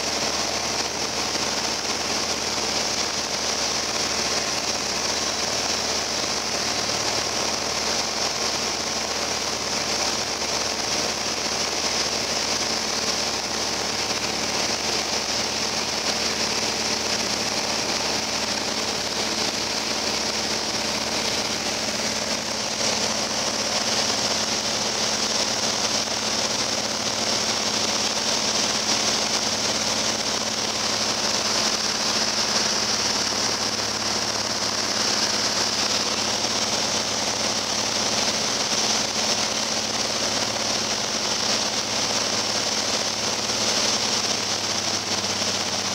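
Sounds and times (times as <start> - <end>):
airplane engine and propeller: 0.0 - 45.9
rushing air hiss: 0.0 - 45.9.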